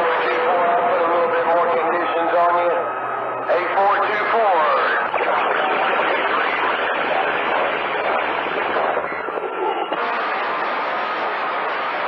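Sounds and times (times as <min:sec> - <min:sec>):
faint garbled radio signals: 0:00.0 - 0:12.0
radio static hiss: 0:03.5 - 0:12.0.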